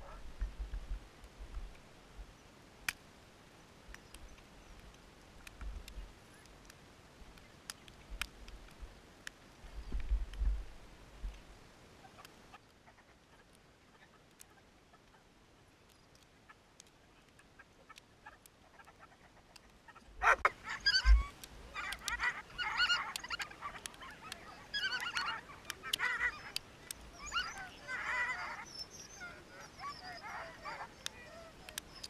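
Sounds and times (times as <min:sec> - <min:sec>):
sled dogs yelping and howling: 0:19.9 - 0:32.0.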